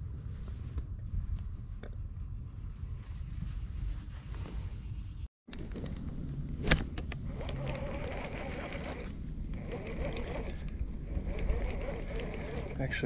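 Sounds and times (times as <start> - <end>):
wind rumbling on microphone: 0.0 - 13.0
fishing reel ticking: 7.2 - 13.0
fishing reel click: 7.3 - 12.8.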